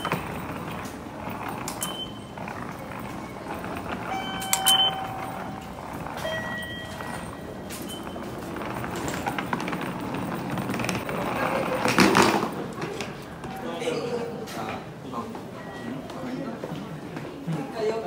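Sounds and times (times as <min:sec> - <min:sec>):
ticket gate beeps: 0:00.0 - 0:10.6, 0:15.5 - 0:16.4
station crowd noise: 0:00.0 - 0:18.0
ticket gate chime: 0:01.7 - 0:09.5.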